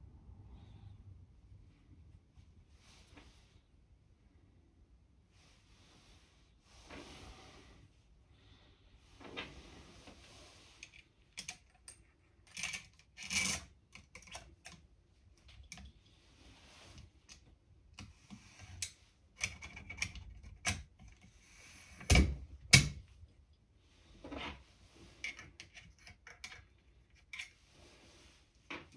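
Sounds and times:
metal parts clicking and scraping: 10.8 - 14.8.

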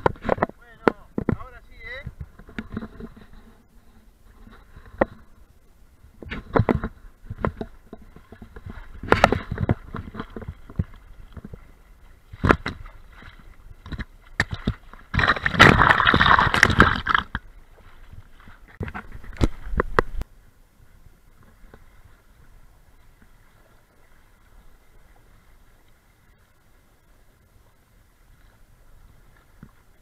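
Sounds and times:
water splashing against boat hull: 0.0 - 20.3.

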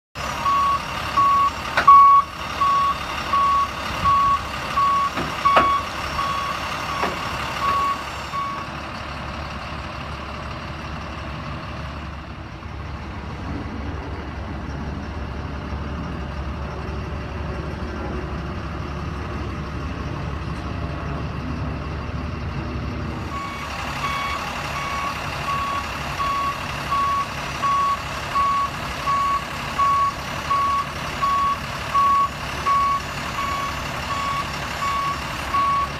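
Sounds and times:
truck warning beeper: 0.2 - 8.8, 23.3 - 35.9
truck engine running low: 0.2 - 35.9
sharp clunks: 5.1 - 5.8, 7.0 - 7.8.

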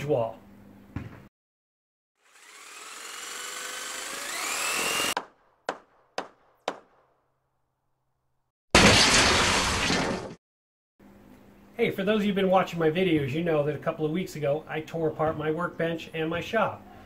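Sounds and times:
power tool motor whining: 2.2 - 5.2
sharp knocks: 5.2 - 7.1.

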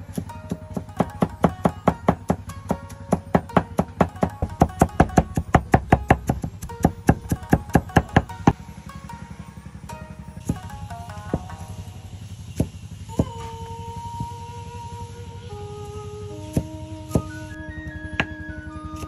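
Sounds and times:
background music: 0.0 - 19.0
rapid sharp knocks: 0.1 - 8.6.

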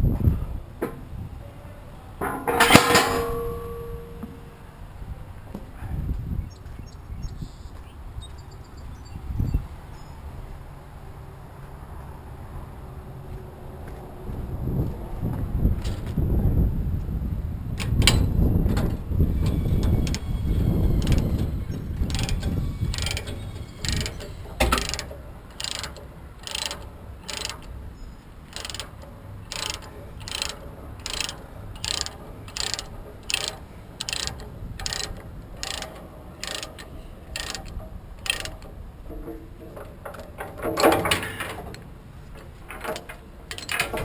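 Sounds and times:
ratchet pawl clicking: 19.3 - 27.8, 28.4 - 38.8, 42.8 - 44.0
loud chain clatter: 19.5 - 27.8, 28.5 - 38.7.

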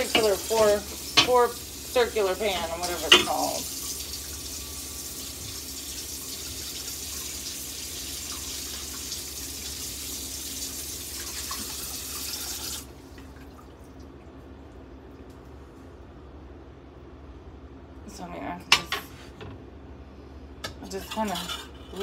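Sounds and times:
faucet running into sink: 0.0 - 13.7.

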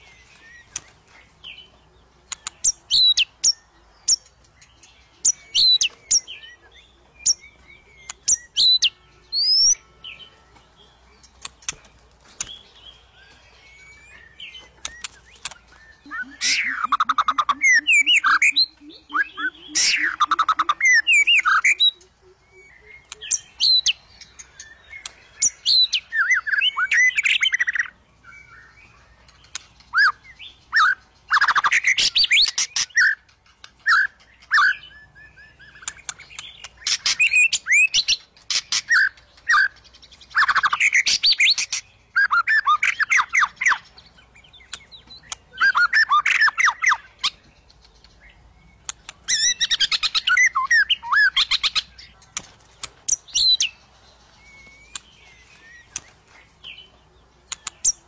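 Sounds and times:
bird whistling song: 2.3 - 52.2, 53.1 - 56.9
bird chattering notes: 14.8 - 24.0.

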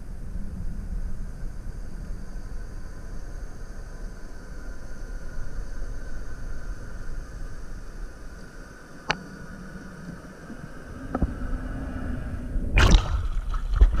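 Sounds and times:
underwater hiss: 0.0 - 13.8
water splashing loudly: 12.8 - 14.0.

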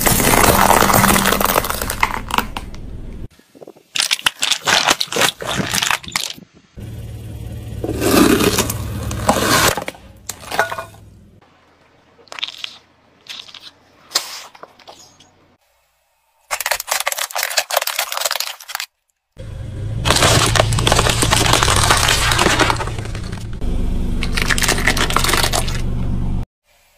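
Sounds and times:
car tyre crushing plastic: 0.0 - 2.8, 7.9 - 11.0, 20.0 - 23.6, 24.2 - 25.9.

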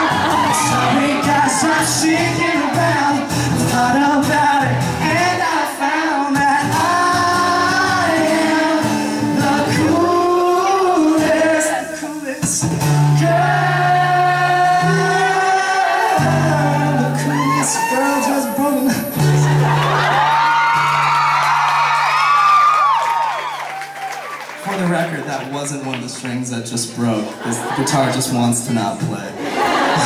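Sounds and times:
man singing into a microphone: 0.0 - 19.5
acoustic guitar: 0.0 - 30.0.

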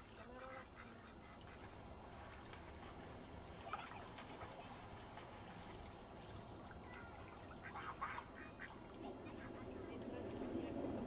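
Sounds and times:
faint low rumble: 0.0 - 11.0
ducks quacking: 7.6 - 9.7.

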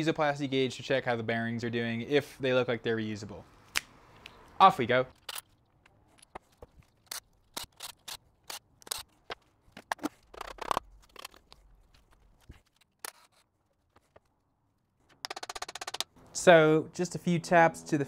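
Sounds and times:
rasping sound: 9.8 - 13.5
metallic clicks of hand tools: 15.2 - 16.1.

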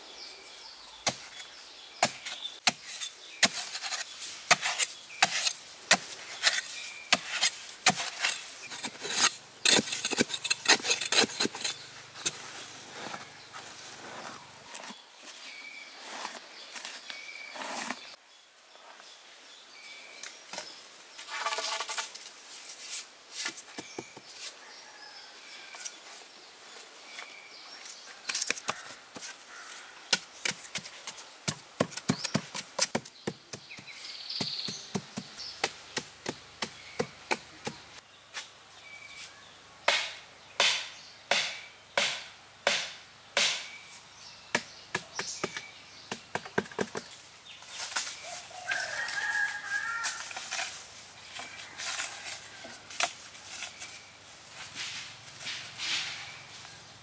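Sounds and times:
wooden stick striking sandy soil: 1.0 - 15.6, 28.2 - 37.8, 39.9 - 43.8, 44.5 - 56.5.

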